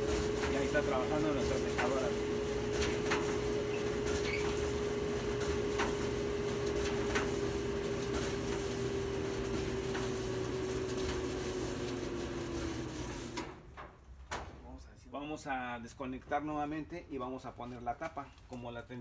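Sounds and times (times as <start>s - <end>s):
clothes dryer humming: 0.0s - 13.7s.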